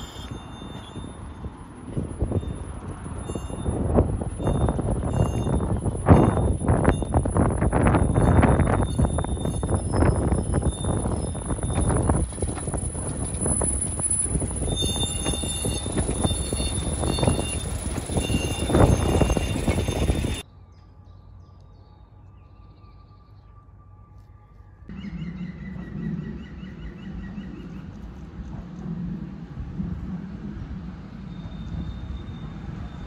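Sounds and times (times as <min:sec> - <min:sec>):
wind buffeting microphone: 0:00.0 - 0:20.4, 0:24.9 - 0:33.0
diesel train pulling away: 0:00.0 - 0:22.2, 0:24.9 - 0:33.0
diesel locomotive humming: 0:00.0 - 0:22.6, 0:24.7 - 0:33.0
birdsong: 0:24.9 - 0:28.6.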